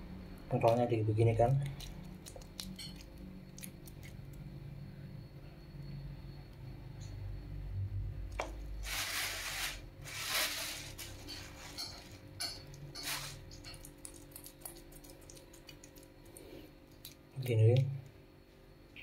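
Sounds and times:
wet squishing: 1.4s - 4.4s, 12.7s - 17.9s
metal spoon scraping a pan: 9.5s - 13.4s.

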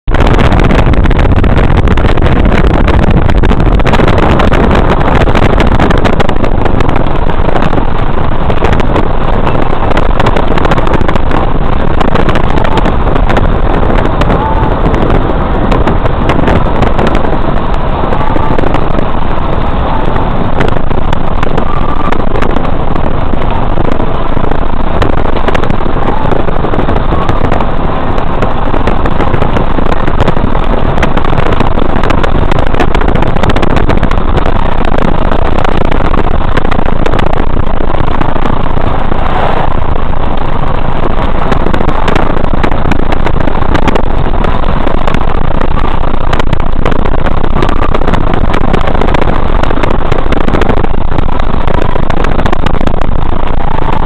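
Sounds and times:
heavy low rumble: 0.0s - 54.0s
wind and road noise in car: 0.0s - 54.0s.

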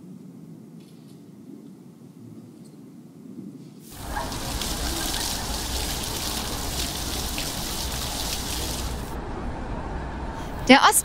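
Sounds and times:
fountain water splashing: 3.9s - 9.2s.

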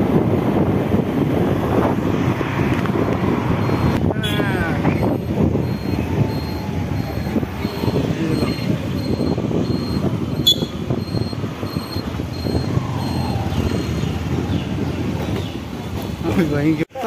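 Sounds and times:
motorcycle engine rumble: 0.0s - 16.7s
wind and road noise: 0.0s - 17.0s.

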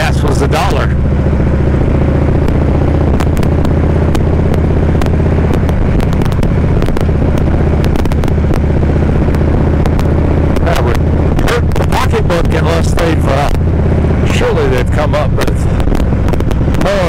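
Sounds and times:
motorcycle engine running: 0.0s - 17.0s
road noise: 0.0s - 17.0s
wind noise: 1.1s - 12.6s, 15.3s - 17.0s.

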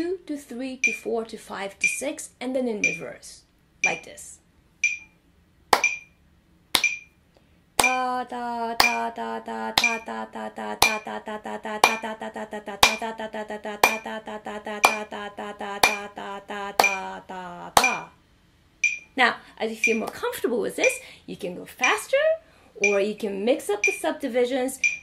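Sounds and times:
woman chanting syllables: 0.0s - 4.4s, 7.8s - 18.2s, 19.2s - 24.8s
metronome ticking: 0.8s - 1.2s, 1.8s - 2.1s, 2.8s - 3.2s, 3.8s - 4.2s, 4.8s - 5.2s, 5.8s - 6.2s, 6.8s - 7.2s, 7.8s - 8.2s, 8.8s - 9.2s, 9.8s - 10.2s, 10.8s - 11.2s, 11.8s - 12.2s, 12.8s - 13.1s, 13.8s - 14.2s, 14.8s - 15.1s, 15.8s - 16.2s, 16.8s - 17.2s, 17.8s - 18.1s, 18.8s - 19.2s, 19.8s - 20.2s, 20.8s - 21.0s, 21.8s - 22.2s, 22.8s - 23.2s, 23.8s - 24.2s, 24.8s - 25.0s
hand claps: 5.7s - 6.1s, 6.8s - 7.1s, 7.8s - 8.1s, 8.8s - 9.1s, 9.8s - 10.0s, 11.8s - 12.1s, 12.8s - 13.0s, 13.8s - 14.1s, 14.8s - 15.1s, 15.8s - 16.1s, 16.8s - 17.1s, 17.8s - 18.1s.

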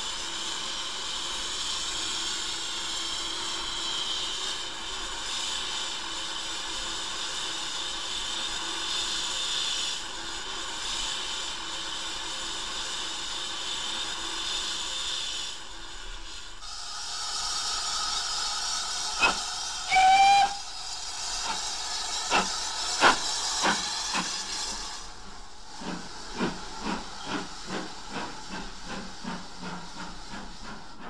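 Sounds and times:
steam engine exhaust beats: 0.0s - 31.0s
steam hissing: 0.0s - 31.0s
steam whistle: 18.9s - 25.1s.

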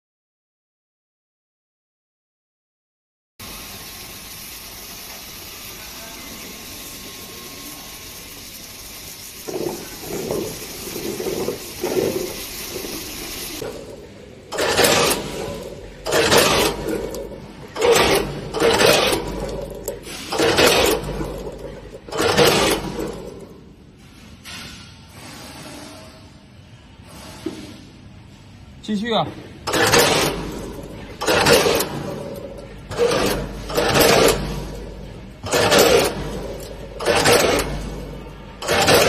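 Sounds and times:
machinery hiss: 3.4s - 22.9s.

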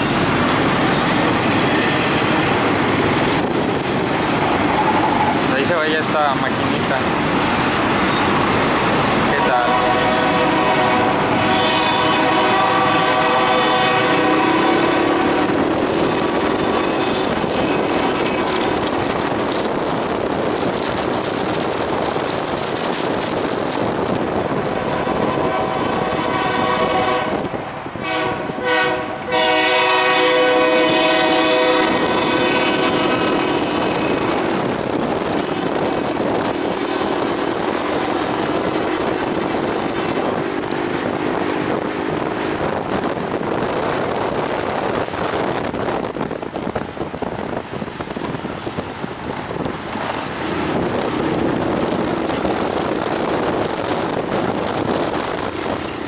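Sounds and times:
train wheels rolling on rails: 0.0s - 56.0s
locomotive air horn: 9.6s - 15.6s, 24.8s - 33.3s.

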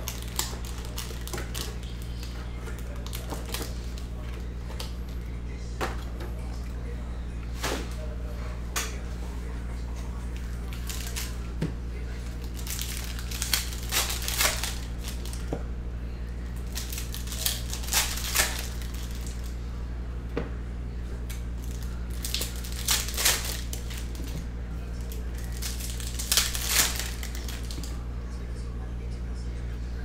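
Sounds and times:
card pack wrappers ripping: 0.0s - 4.2s, 10.6s - 11.4s, 12.3s - 15.5s, 16.6s - 19.5s, 21.6s - 24.4s, 25.0s - 28.0s
steady low hum: 0.0s - 30.0s.

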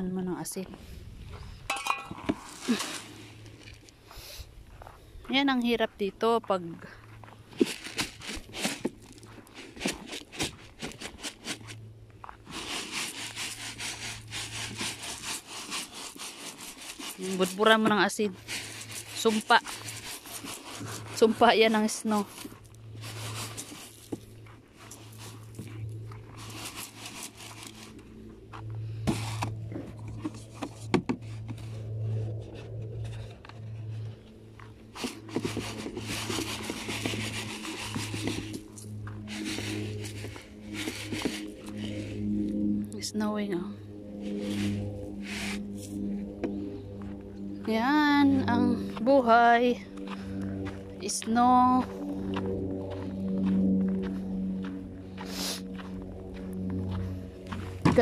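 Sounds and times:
footsteps crunching on snow: 0.5s - 58.0s
hand digging in rock salt: 2.0s - 3.8s, 7.5s - 24.2s, 24.8s - 28.0s, 34.9s - 42.2s, 44.2s - 46.1s
salt granules pattering on ice: 12.5s - 22.4s.

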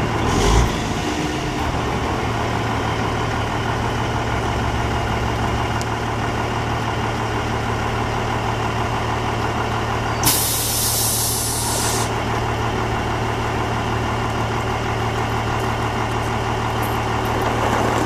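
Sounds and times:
diesel truck idling: 0.0s - 18.0s
compressed air hiss: 10.2s - 12.1s.

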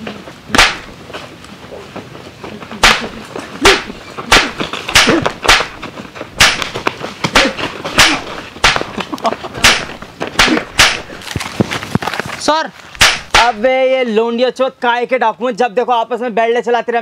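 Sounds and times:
punch sound effects: 0.5s - 0.9s, 2.8s - 5.8s, 6.4s - 8.9s, 9.6s - 11.1s, 13.0s - 13.6s
short grunts: 3.6s - 5.4s.

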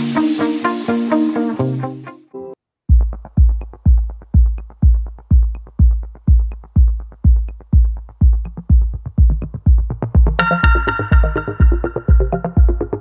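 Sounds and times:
electronic music: 0.0s - 13.0s
heavy kick drum: 2.9s - 13.0s.

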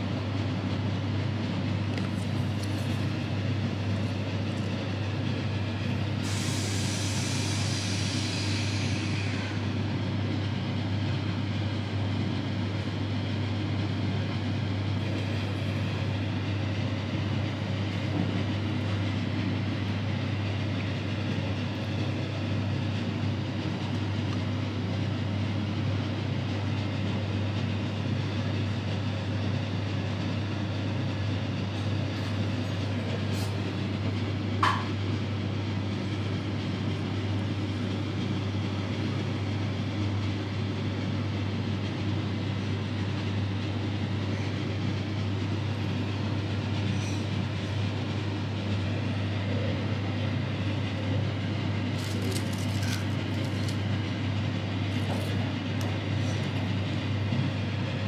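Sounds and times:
restaurant room hum: 0.0s - 58.0s
hiss: 6.2s - 9.7s.

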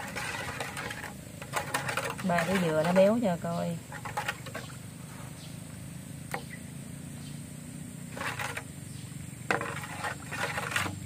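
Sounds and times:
spoon stirring batter in bowl: 0.0s - 4.7s
steady low hum: 0.0s - 11.0s.

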